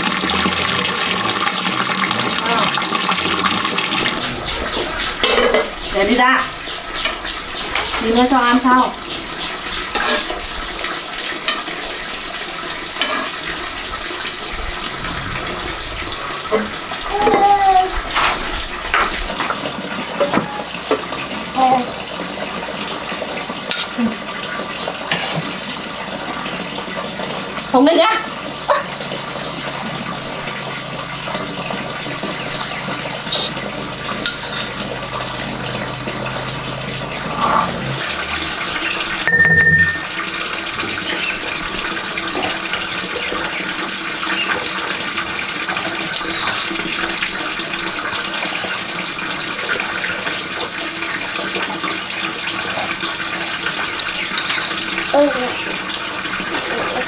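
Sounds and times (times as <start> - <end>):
water running: 0.0 - 57.0
low hum: 3.8 - 10.7, 14.2 - 17.2.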